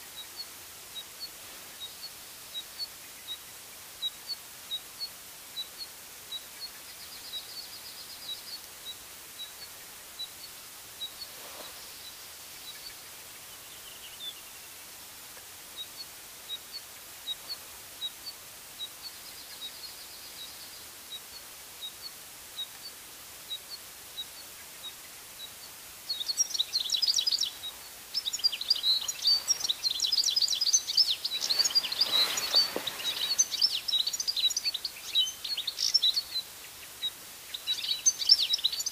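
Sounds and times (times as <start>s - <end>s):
finch twittering song: 24.2s - 38.9s.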